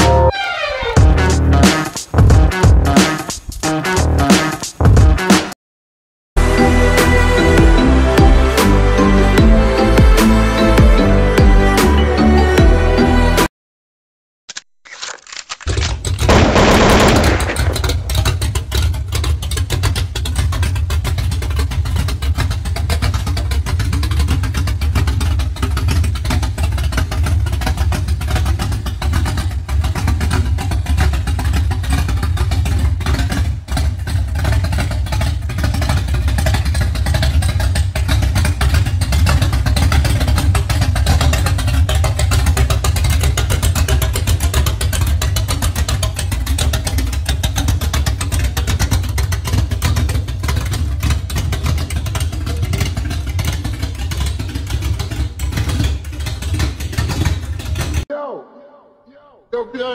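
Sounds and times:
pickup engine exhaust rumble: 16.1s - 58.0s.

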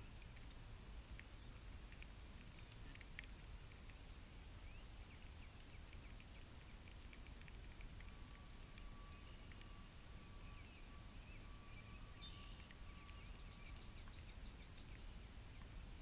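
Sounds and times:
low outdoor rumble: 0.0s - 16.0s
thin steady high tone: 7.9s - 14.2s
faint bird chirps: 8.0s - 15.8s.

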